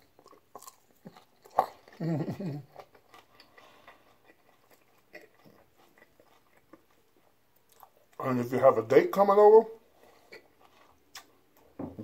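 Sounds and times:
chewing salad: 0.0s - 8.7s, 9.8s - 11.7s
wet mouth clicks: 11.1s - 11.3s.

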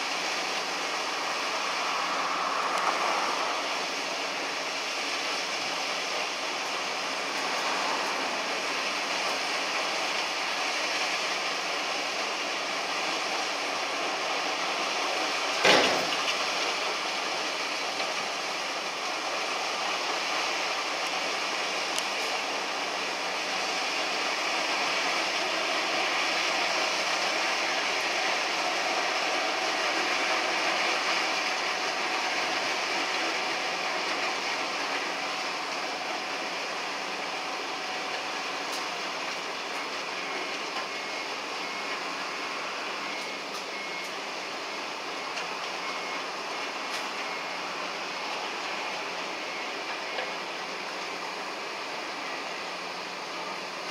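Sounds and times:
loading machinery running: 0.0s - 53.9s.

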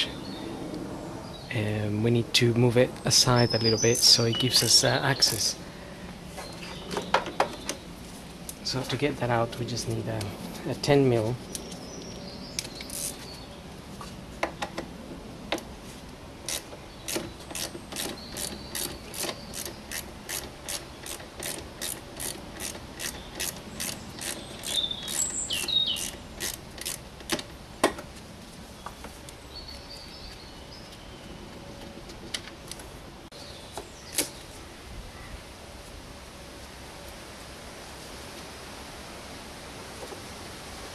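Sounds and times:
ratchet wrench clicking: 12.9s - 13.2s, 16.5s - 27.4s.

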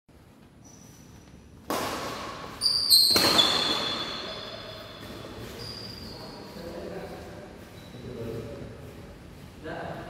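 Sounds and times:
shoes squeaking on court floor: 0.6s - 1.5s, 2.4s - 8.6s
racket hitting shuttlecock: 1.6s - 5.2s.

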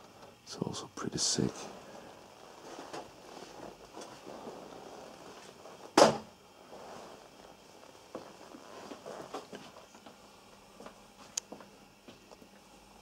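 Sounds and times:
loud thump: 6.0s - 6.3s
faint knocks and rustles: 6.7s - 12.5s.

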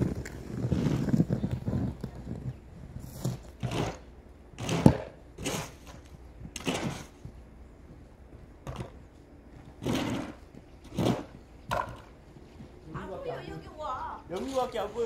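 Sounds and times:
footsteps crunching in snow: 0.0s - 3.7s.

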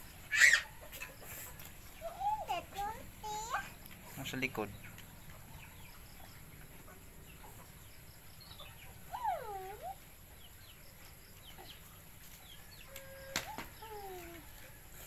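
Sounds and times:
fowl chirping: 0.1s - 2.4s.

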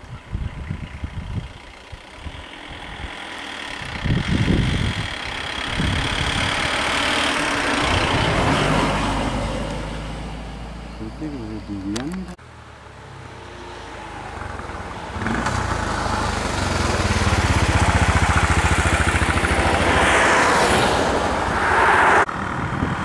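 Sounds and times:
car engine driving past: 13.0s - 22.7s.

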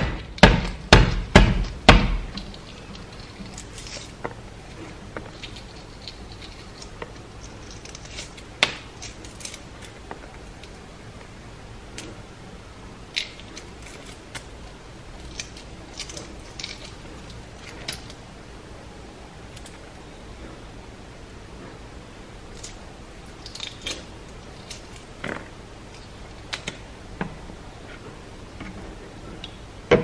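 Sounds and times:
eggshell cracking and crinkling: 1.7s - 10.8s.

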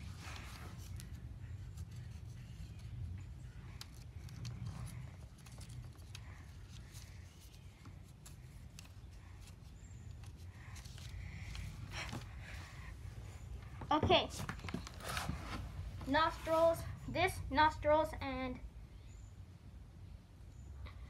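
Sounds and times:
marker scratching: 0.0s - 9.5s
paper stencil rustling: 0.0s - 12.8s, 14.6s - 16.9s.

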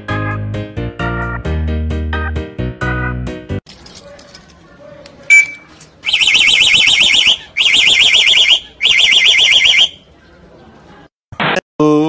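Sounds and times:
bird mimicking car alarm: 5.3s - 10.1s.

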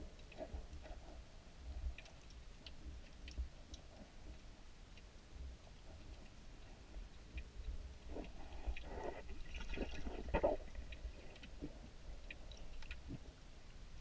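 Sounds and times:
faint clicks: 0.0s - 9.4s, 10.0s - 14.0s
underwater low rumble: 0.0s - 14.0s
gurgling water: 5.4s - 14.0s.

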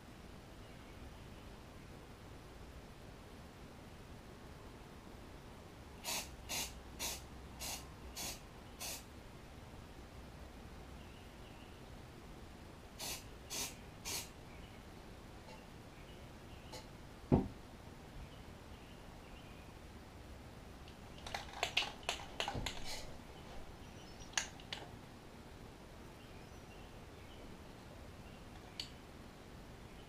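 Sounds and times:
low thump on table: 17.3s - 17.6s
light clicks and rustles: 20.9s - 23.7s.

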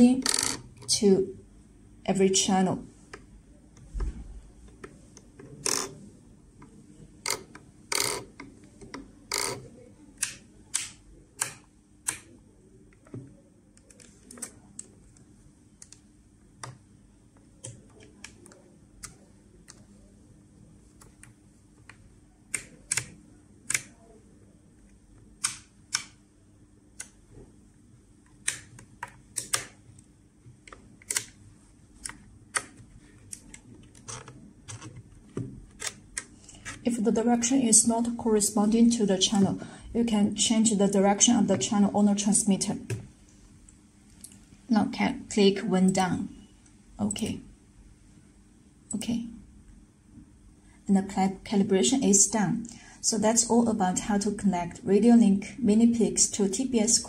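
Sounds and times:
switches clicking: 7.3s - 12.3s, 25.4s - 26.2s, 28.4s - 30.0s, 30.7s - 31.4s.

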